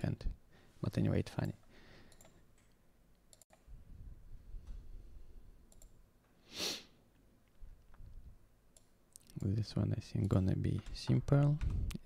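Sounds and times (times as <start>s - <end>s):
computer mouse clicks: 1.4s - 3.7s, 5.7s - 6.0s, 8.7s - 9.6s.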